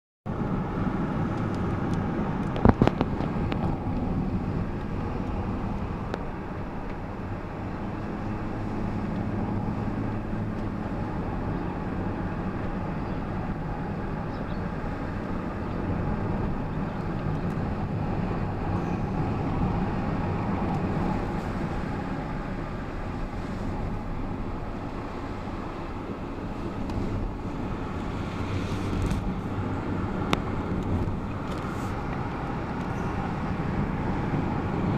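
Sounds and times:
car engine and tyre road noise: 0.3s - 34.9s.

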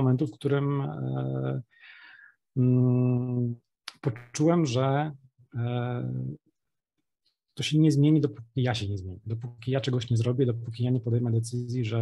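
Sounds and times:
short breath in: 1.7s - 2.4s.

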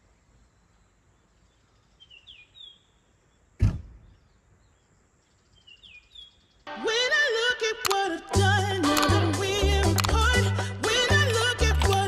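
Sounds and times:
loud thump: 3.6s - 4.2s.

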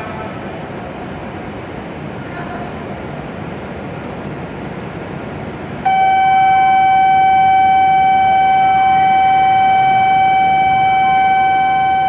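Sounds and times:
low hum of station platform: 0.0s - 12.0s
loud steady electronic warning beep: 5.8s - 12.0s.

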